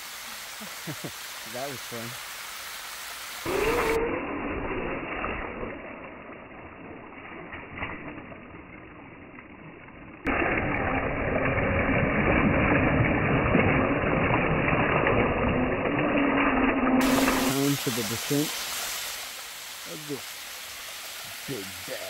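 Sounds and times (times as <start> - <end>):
water splashing: 0.0 - 22.0
toy truck motor whine: 15.6 - 17.5.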